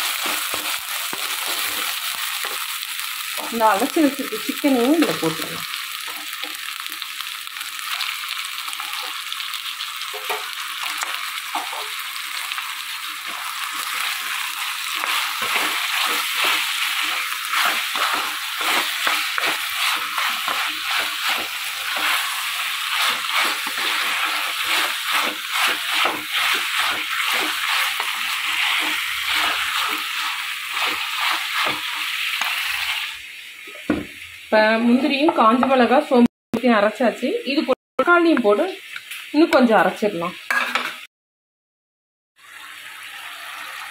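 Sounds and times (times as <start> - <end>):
spoon scraping and knocking pan: 0.0 - 2.6, 10.1 - 12.0, 13.2 - 33.0, 40.5 - 41.0
chicken sizzling in pan: 0.0 - 35.4, 37.3 - 41.0, 42.4 - 43.9.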